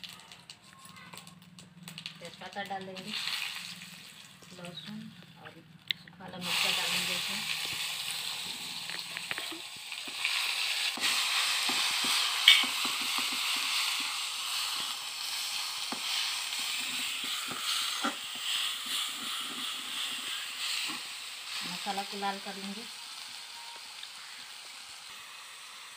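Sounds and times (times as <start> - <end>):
spices sizzling in hot oil: 1.1 - 5.1, 6.3 - 25.9
metal ladle scraping a pan: 10.2 - 14.9.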